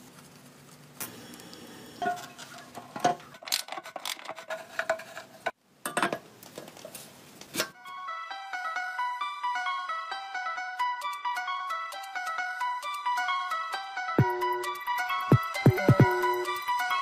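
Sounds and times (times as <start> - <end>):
metal parts and tools clinking: 2.0 - 5.2
light plucked music: 7.8 - 17.0.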